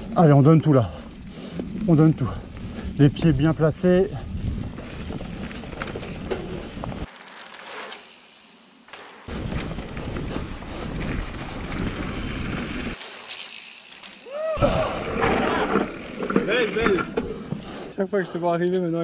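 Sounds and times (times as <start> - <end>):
bike rattling: 0.0 - 18.0
bike tyre rumble: 0.0 - 18.0
wind noise on microphone: 2.4 - 7.1.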